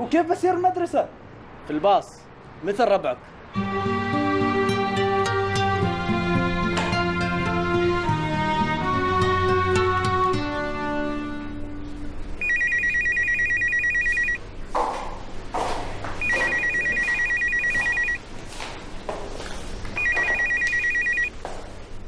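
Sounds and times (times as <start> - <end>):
background music: 3.5 - 12.5
telephone ringing: 12.4 - 14.4, 16.2 - 18.2, 20.0 - 21.3.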